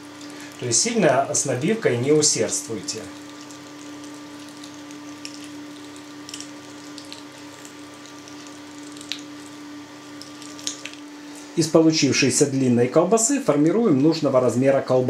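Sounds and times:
steady hum: 0:00.0 - 0:15.0
wet crackles and clicks: 0:02.9 - 0:11.1.

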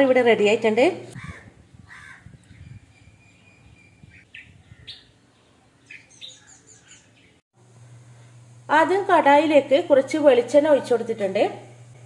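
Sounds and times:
low steady hum: 0:00.0 - 0:12.0
small birds chirping: 0:01.2 - 0:07.4.

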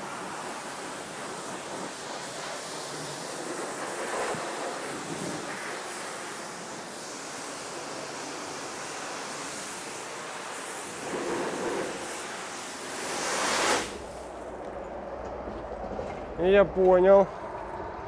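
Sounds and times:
pressure washer spray hissing: 0:00.0 - 0:14.4.

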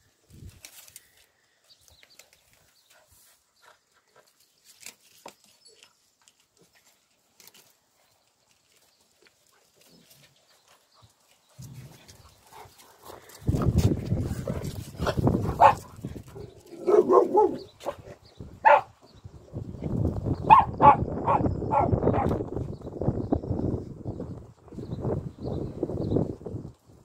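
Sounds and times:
puppies scuffling on concrete: 0:02.0 - 0:16.9.

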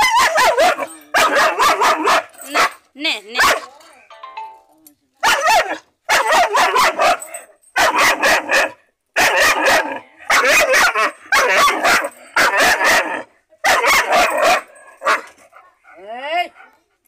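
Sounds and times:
puppy barking: 0:00.0 - 0:02.8, 0:03.4 - 0:03.8, 0:05.2 - 0:15.4.

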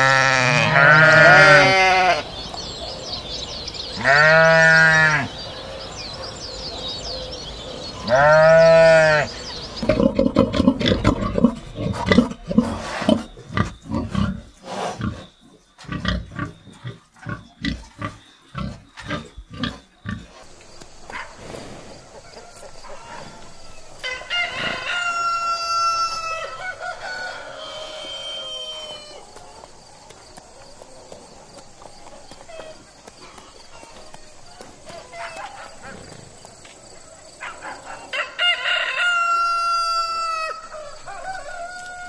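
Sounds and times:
rooster crowing: 0:22.3 - 0:29.2, 0:38.1 - 0:42.0.

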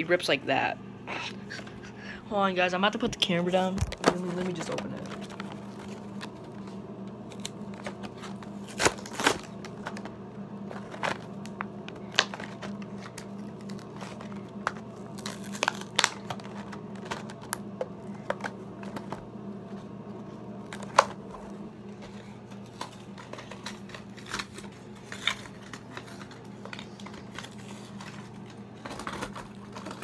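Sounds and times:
steady low hum: 0:00.0 - 0:30.0
packaging being torn open: 0:07.3 - 0:10.0, 0:10.8 - 0:17.6, 0:23.6 - 0:28.2.

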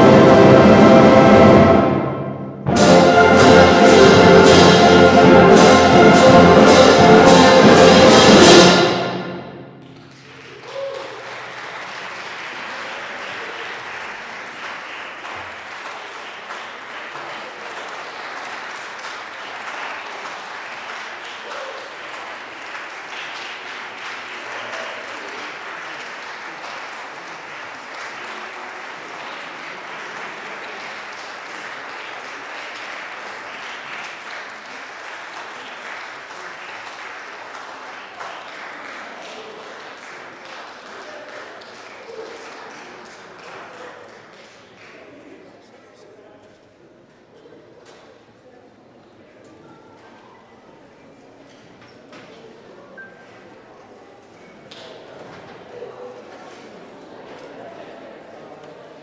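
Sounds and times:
concert band final chord: 0:00.0 - 0:09.8
percussion strokes: 0:00.0 - 0:10.1
audience applause: 0:02.7 - 0:46.1.

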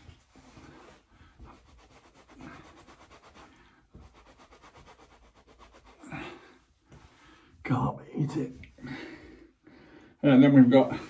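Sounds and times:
hand rubbing on skin: 0:00.0 - 0:07.1.

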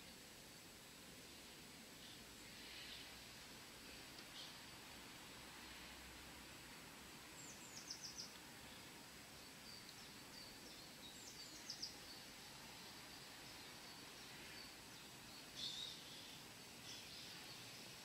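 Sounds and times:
faint steady hiss: 0:00.0 - 0:18.0
songbird calling: 0:07.4 - 0:08.8, 0:09.6 - 0:12.2, 0:13.6 - 0:17.6.

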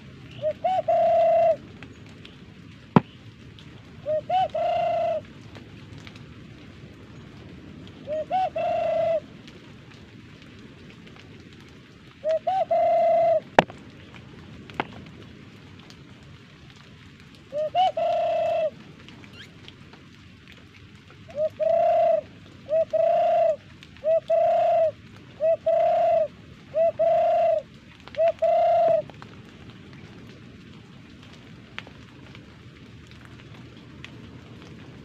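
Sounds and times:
hand-blown dove call coos: 0:00.3 - 0:01.7, 0:04.0 - 0:05.3, 0:08.0 - 0:09.3, 0:12.2 - 0:13.7, 0:17.5 - 0:18.8, 0:21.3 - 0:29.2.

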